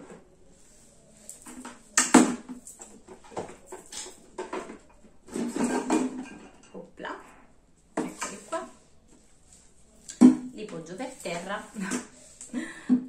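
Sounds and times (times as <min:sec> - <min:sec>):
rustling: 0:00.0 - 0:12.6
plastic containers clattering: 0:01.4 - 0:06.9.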